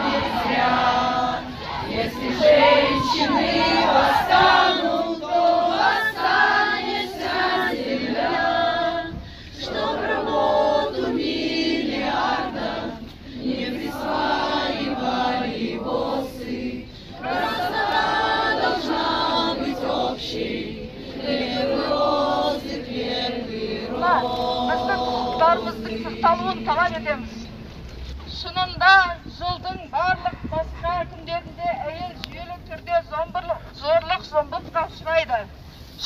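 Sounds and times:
women singing in unison: 0.0s - 27.6s.

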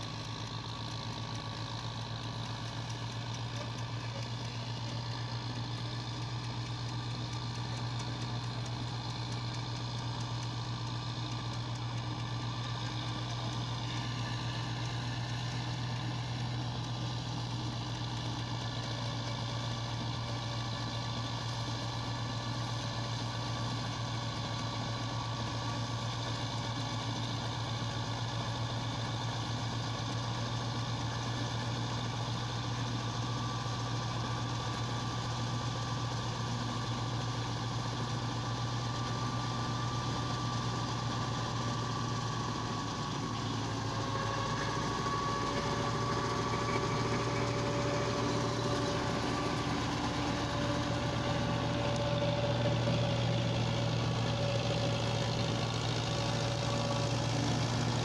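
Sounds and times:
tractor diesel engine running: 0.0s - 58.0s
straw chopper whine: 43.0s - 58.0s.

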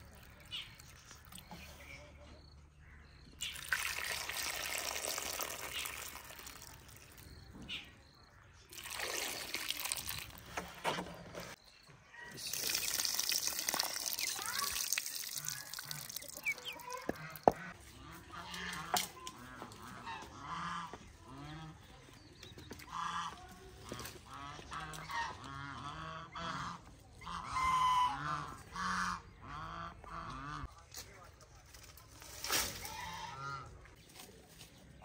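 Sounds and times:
chickens calling: 13.9s - 30.7s.

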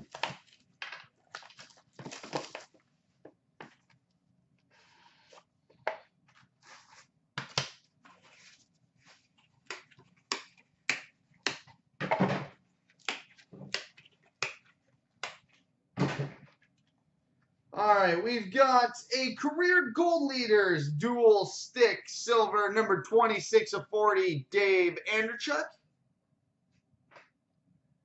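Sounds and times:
cardboard rustling: 0.0s - 2.9s.

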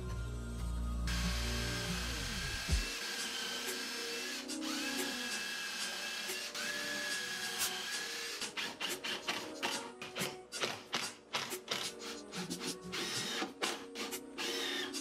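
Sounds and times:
background music: 0.0s - 15.0s
cordless driver motor whining: 1.1s - 8.5s.

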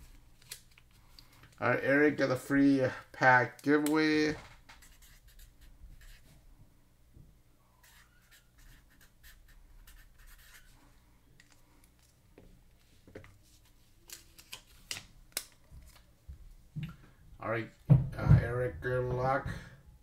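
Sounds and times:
marker scratching on paper: 4.8s - 6.4s, 7.8s - 10.8s.

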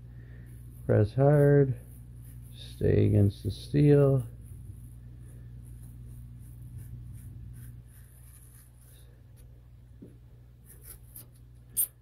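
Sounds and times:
low steady hum: 0.0s - 12.0s
razor blade scratching on steel: 11.2s - 12.0s.

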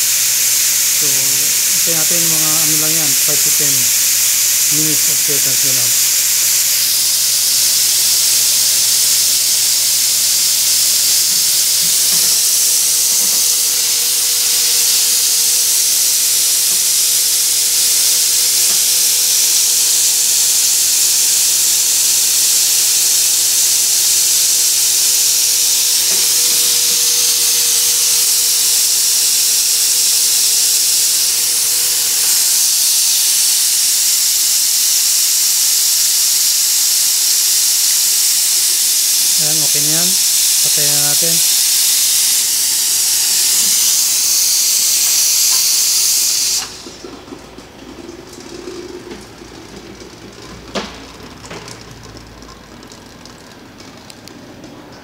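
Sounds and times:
steam hissing from espresso machine: 0.0s - 54.7s.

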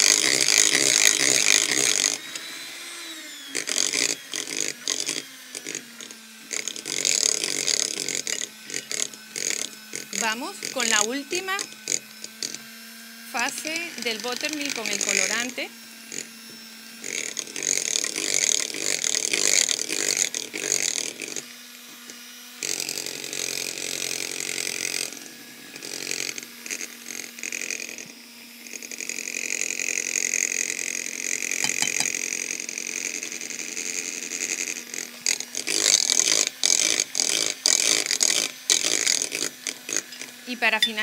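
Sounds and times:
electric mixer beaters whirring: 0.0s - 41.0s.

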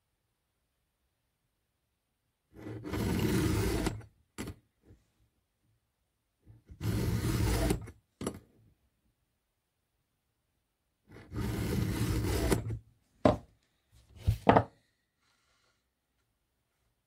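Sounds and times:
file rasping on chain: 2.6s - 4.0s, 6.7s - 7.9s, 11.1s - 12.8s
quiet file scrape: 2.6s - 4.0s, 11.1s - 12.8s.

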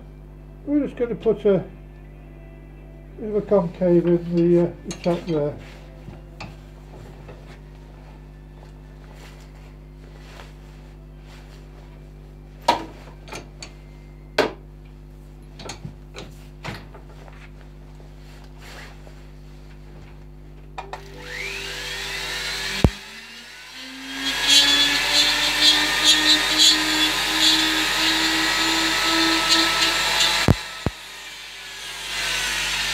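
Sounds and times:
rotary tool grinding wood: 21.0s - 32.9s.

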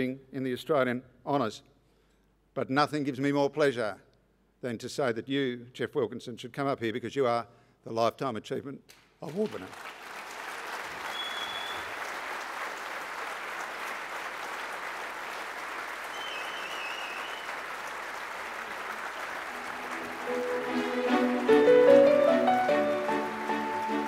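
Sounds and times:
audience applauding: 9.2s - 24.0s
music: 19.4s - 24.0s.

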